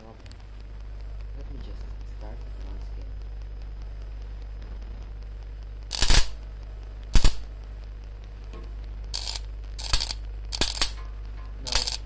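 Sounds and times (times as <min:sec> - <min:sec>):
laser tube crackling and snapping: 0:00.0 - 0:12.0
steady low hum: 0:00.0 - 0:12.0.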